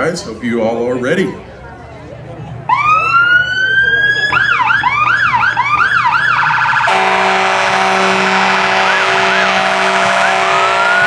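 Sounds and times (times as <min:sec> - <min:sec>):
siren warbling faintly: 0:02.7 - 0:11.0
siren yelp: 0:02.7 - 0:11.0
loud steady horn blast: 0:06.8 - 0:11.0.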